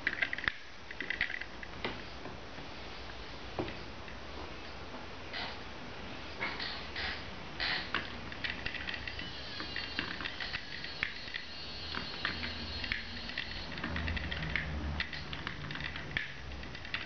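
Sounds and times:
wooden mechanism clicking: 0.0 - 2.0, 6.5 - 17.0.

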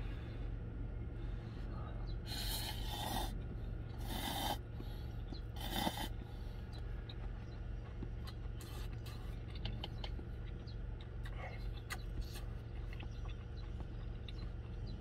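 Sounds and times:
steady low hum: 0.0 - 15.0
chewing with small clicks: 2.1 - 15.0
man slurping noodles: 4.0 - 4.6, 5.6 - 6.1.

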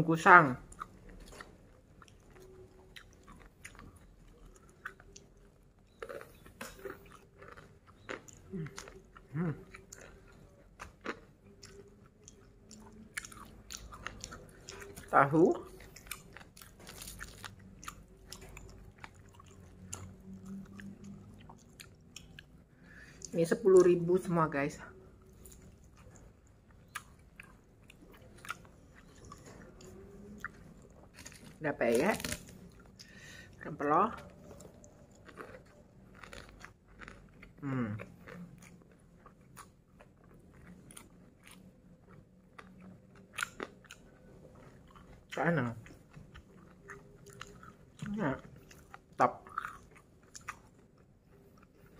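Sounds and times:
chewing food: 0.2 - 51.9.

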